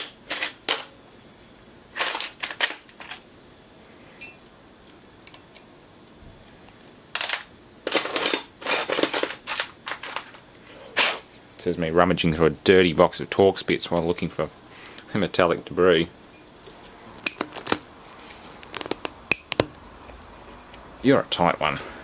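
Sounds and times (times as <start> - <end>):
metal tools clinking and clattering: 0.0 - 0.9, 7.2 - 10.4.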